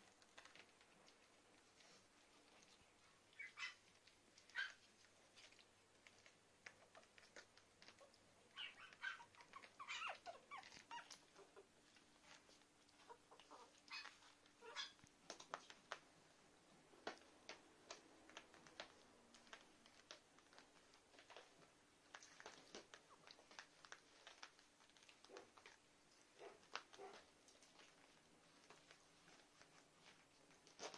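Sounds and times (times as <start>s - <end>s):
scratching and rustling on pad: 0.0s - 30.9s
puppies squeaking and grunting: 2.6s - 15.1s.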